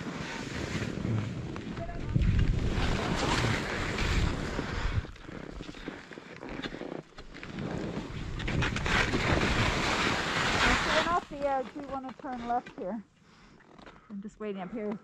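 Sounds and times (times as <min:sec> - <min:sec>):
skis sliding over snow: 0:00.0 - 0:13.0
wind buffeting microphone: 0:00.9 - 0:05.2, 0:07.8 - 0:11.7.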